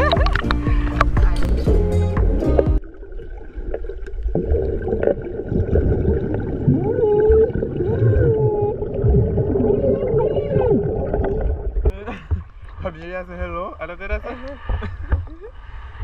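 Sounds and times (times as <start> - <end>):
muffled voices humming underwater: 0.0 - 1.8, 4.4 - 12.8
underwater rumble and bubbles: 0.0 - 16.0.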